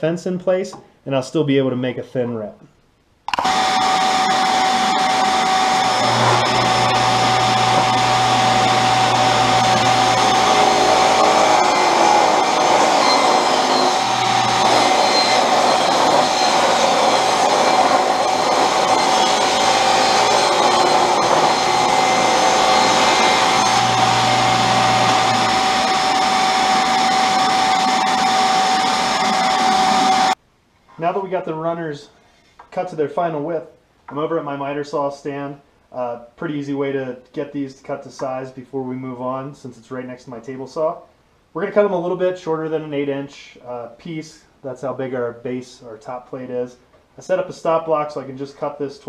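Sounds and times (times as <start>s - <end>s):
table saw whine: 3.3s - 30.4s
deeper saw hum: 3.4s - 30.4s.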